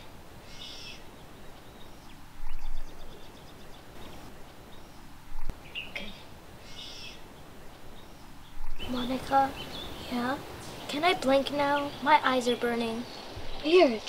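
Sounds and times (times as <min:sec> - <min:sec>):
birds chirping: 0:00.0 - 0:14.0
low bumps: 0:07.2 - 0:14.0.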